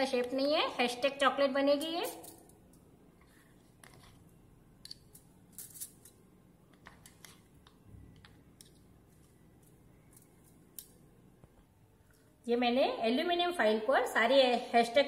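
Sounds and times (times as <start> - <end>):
metal spoons clicking and scraping: 1.7 - 2.8, 4.8 - 6.2.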